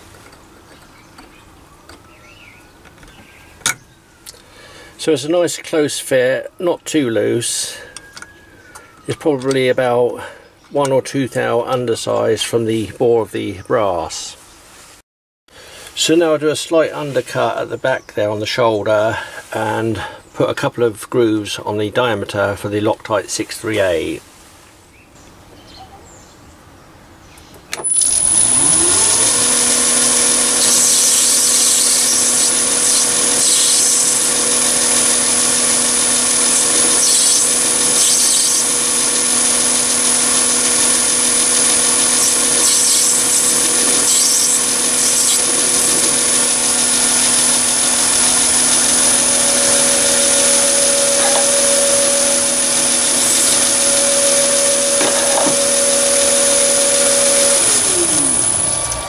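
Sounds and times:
lathe motor whine: 2.8s - 12.3s, 27.8s - 59.0s
tool cutting metal hiss: 27.8s - 59.0s.

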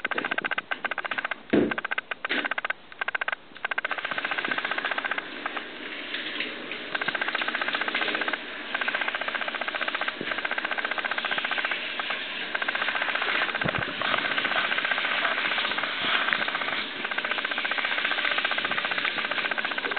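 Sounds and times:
thin steady tone: 6.8s - 19.9s.

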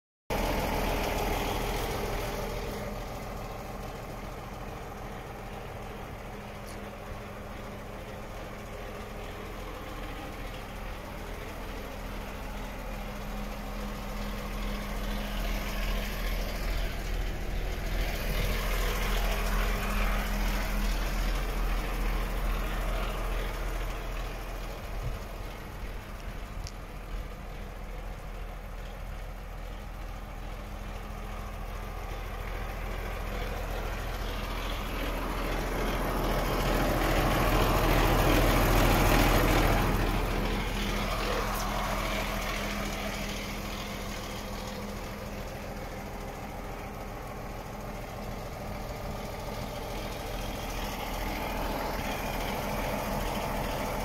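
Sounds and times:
diesel engine idling: 0.3s - 54.0s.

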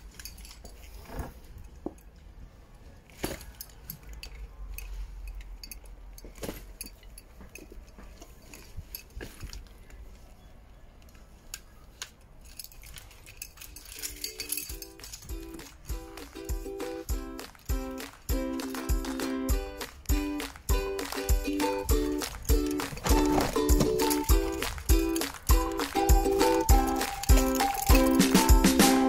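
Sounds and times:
pushchair rattling over paving: 21.7s - 28.6s.

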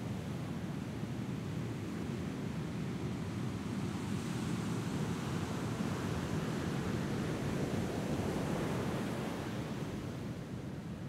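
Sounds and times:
wind: 0.0s - 11.0s.

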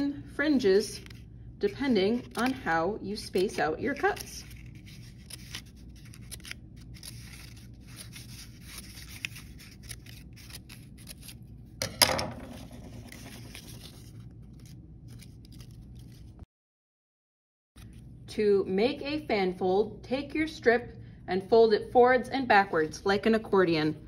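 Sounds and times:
scissors snipping paper: 2.1s - 11.4s.

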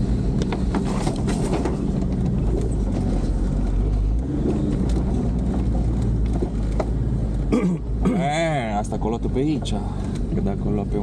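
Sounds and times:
engine and road rumble: 0.0s - 11.0s
knocks and rattles from bumps: 0.4s - 7.1s.

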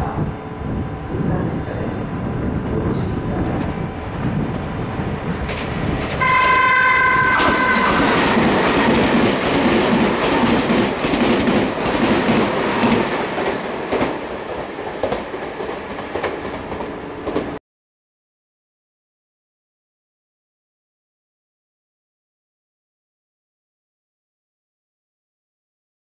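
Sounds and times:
train running noise: 0.0s - 17.6s
wheels clattering over rail joints: 5.3s - 6.6s
train horns chord: 6.2s - 8.9s.

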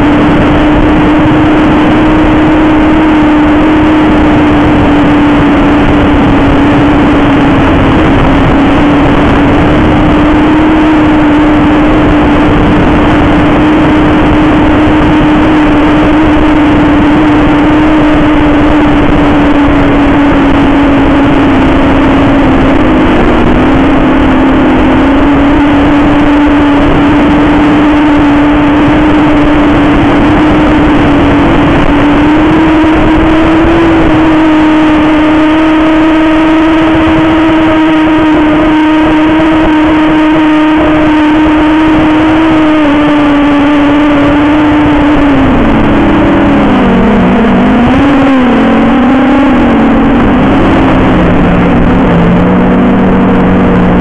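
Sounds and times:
drone motors buzzing whine: 0.0s - 54.0s.

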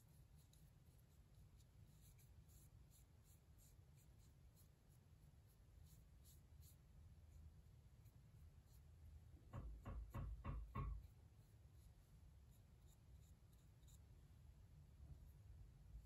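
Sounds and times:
soft rubbing knocks: 9.4s - 11.2s.

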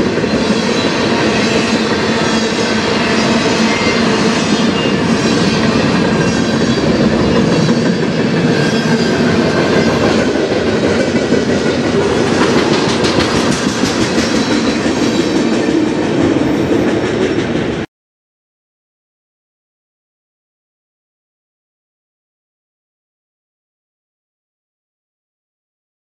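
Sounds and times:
train wheels rumbling on rails: 0.0s - 17.9s.

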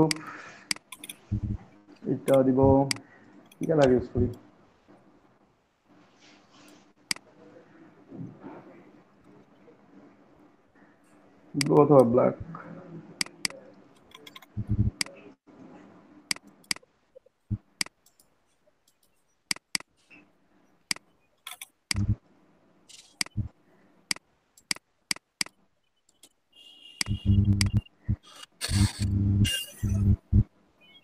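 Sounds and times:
computer mouse clicking: 0.0s - 1.3s, 2.3s - 4.4s, 13.2s - 15.2s, 16.3s - 16.8s, 18.9s - 19.9s, 20.9s - 22.1s, 22.9s - 23.5s, 24.1s - 26.4s.

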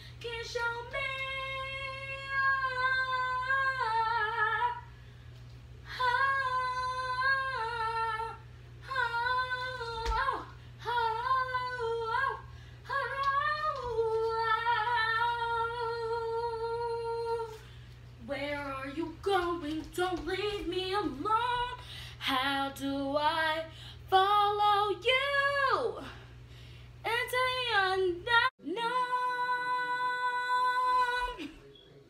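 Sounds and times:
woman singing wordless notes: 0.2s - 4.9s, 5.9s - 17.6s, 18.2s - 26.1s, 27.0s - 31.5s.

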